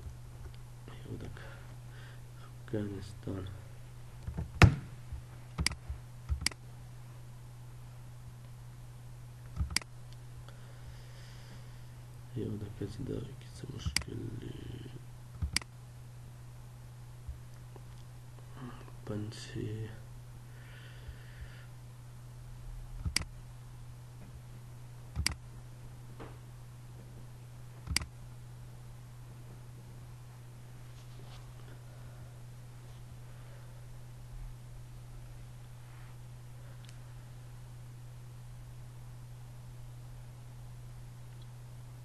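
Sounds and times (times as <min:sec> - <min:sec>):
steady low hum: 0:00.0 - 0:42.0
computer mouse clicks: 0:05.6 - 0:06.6, 0:09.5 - 0:09.9, 0:15.4 - 0:15.7, 0:23.0 - 0:23.3, 0:25.2 - 0:25.4, 0:27.8 - 0:28.1.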